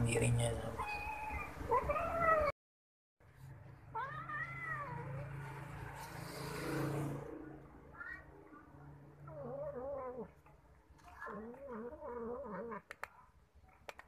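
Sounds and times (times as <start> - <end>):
cat meowing: 0.8 - 2.5, 4.0 - 5.2.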